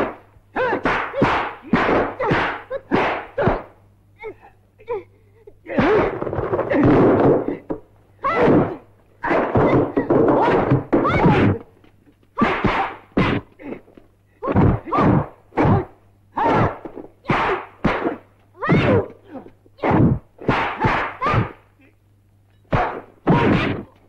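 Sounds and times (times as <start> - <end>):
punch and kick impacts: 0.0 - 3.7, 5.7 - 11.6, 12.4 - 13.8, 14.4 - 19.2, 19.8 - 21.6, 22.7 - 24.0
fighters shouting: 0.0 - 4.4, 5.6 - 6.9, 7.5 - 11.6, 12.4 - 21.6, 22.7 - 24.0.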